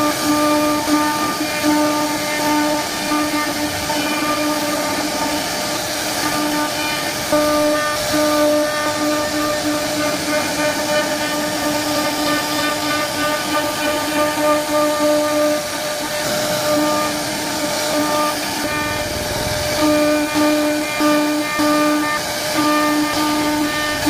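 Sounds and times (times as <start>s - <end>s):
router spindle whining: 0.0s - 24.0s.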